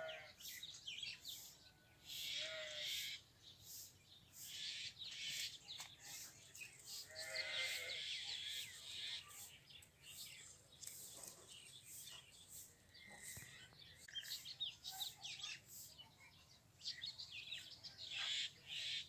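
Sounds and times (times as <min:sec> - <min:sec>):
livestock bleating: 0:02.3 - 0:02.9, 0:07.1 - 0:08.1.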